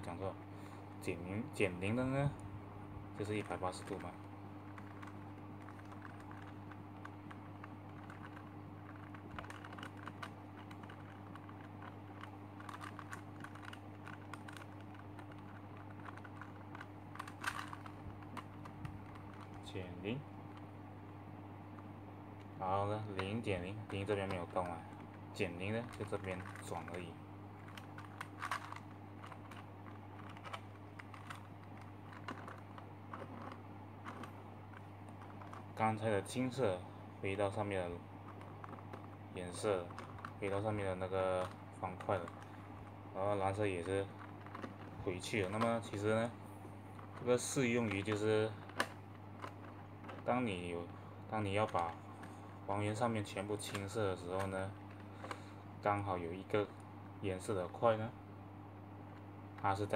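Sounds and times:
steady low hum: 0.0s - 59.9s
plastic puzzle clicking: 4.7s - 19.6s, 27.6s - 35.8s.

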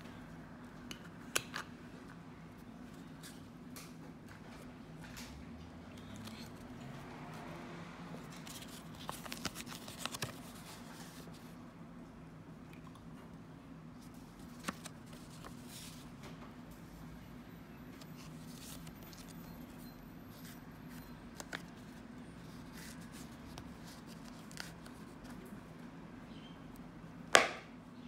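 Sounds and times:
paper rustling: 8.2s - 11.5s, 14.0s - 16.1s, 18.0s - 19.4s.

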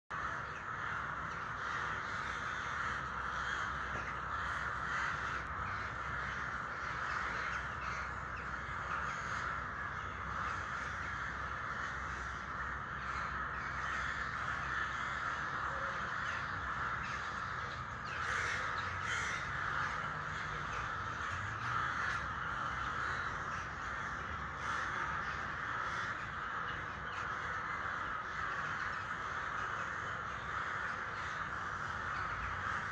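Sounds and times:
flock of crows cawing: 0.1s - 32.9s.

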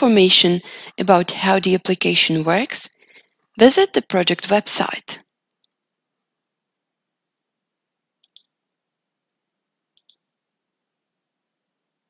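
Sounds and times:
computer mouse clicks: 5.5s - 5.8s, 8.2s - 8.5s, 9.9s - 10.3s.

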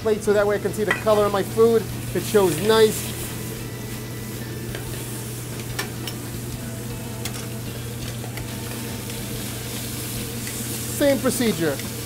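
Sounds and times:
steady low hum: 0.0s - 11.0s
food sizzling in pans: 0.1s - 12.0s
tongs clicking against pans: 5.6s - 6.6s.

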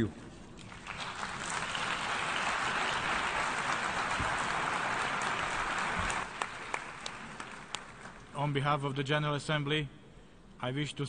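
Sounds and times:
crowd clapping: 0.6s - 8.4s.

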